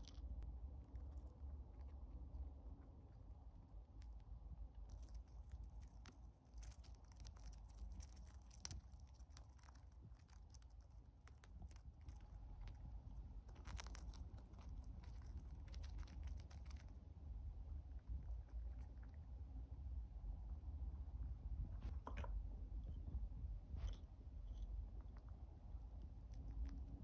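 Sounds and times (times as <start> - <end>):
low steady hum: 0.0 - 27.0
hamster crunching seed shell: 4.9 - 19.3.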